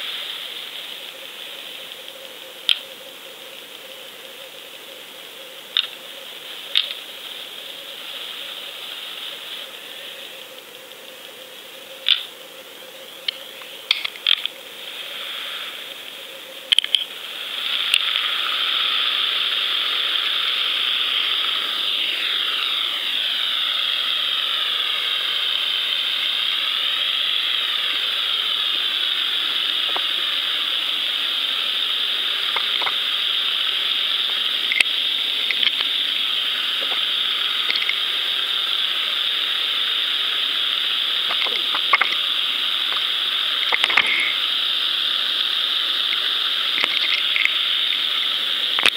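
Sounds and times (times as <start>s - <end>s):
underwater water rushing hiss: 0.0s - 2.5s, 3.4s - 11.8s, 14.0s - 48.9s.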